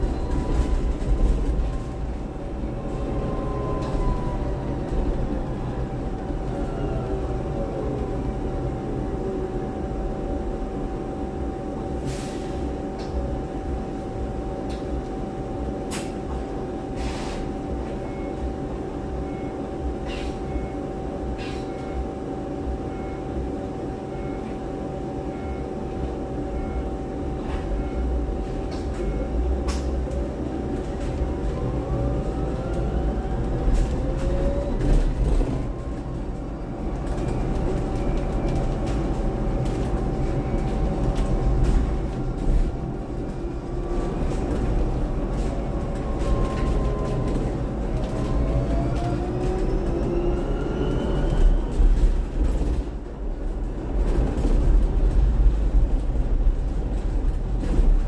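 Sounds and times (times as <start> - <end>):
road rumble: 27.3 - 58.0.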